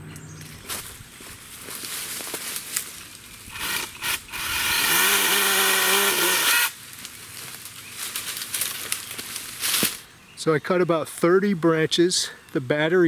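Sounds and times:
branches rustling: 0.3 - 10.3
mini chainsaw cutting branch: 2.4 - 7.1.

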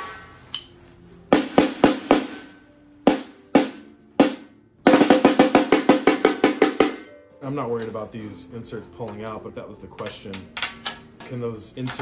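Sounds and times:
high-pitched snare drum strokes: 0.0 - 7.1.

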